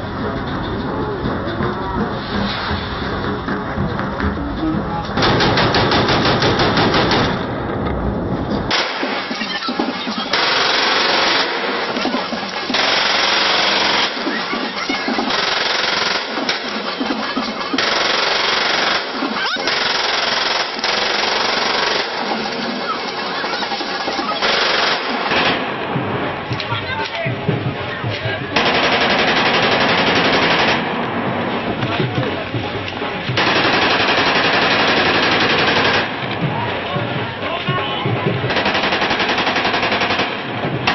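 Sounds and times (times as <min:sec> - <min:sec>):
rifles firing automatic bursts: 0:05.2 - 0:07.5, 0:08.7 - 0:25.7, 0:28.6 - 0:31.0, 0:33.4 - 0:36.3, 0:38.5 - 0:40.9.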